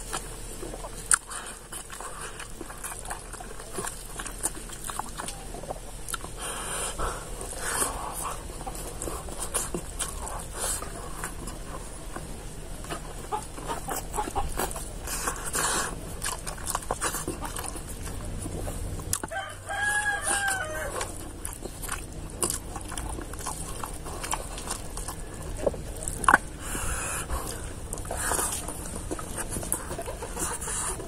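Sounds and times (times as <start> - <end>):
wet chewing and mouth smacks: 0.0 - 31.0
rooster crowing: 19.2 - 21.2.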